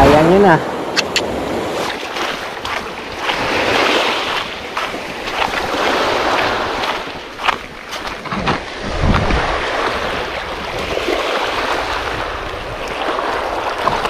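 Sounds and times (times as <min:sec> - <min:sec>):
waves on pebble beach: 0:00.0 - 0:14.0
wind on microphone: 0:00.0 - 0:14.0
brief clicks: 0:01.0 - 0:01.3.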